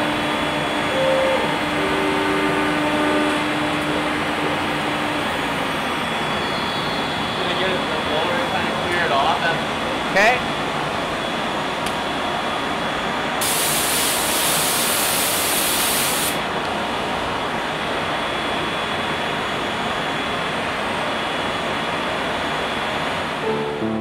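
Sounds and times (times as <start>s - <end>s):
cnc router rushing noise: 0.0s - 13.4s
sharp hiss: 13.4s - 16.4s.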